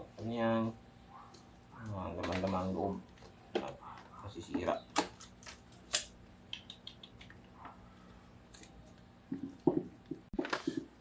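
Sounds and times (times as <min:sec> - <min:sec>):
desoldering pump snap: 0:04.9 - 0:07.3.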